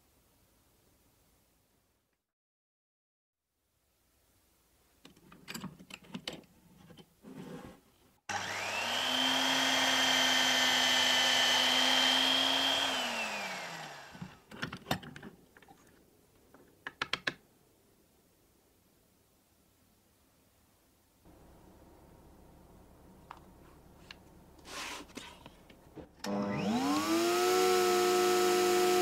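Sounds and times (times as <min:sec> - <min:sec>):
drill press motor whine: 0:08.3 - 0:14.4, 0:26.2 - 0:29.0.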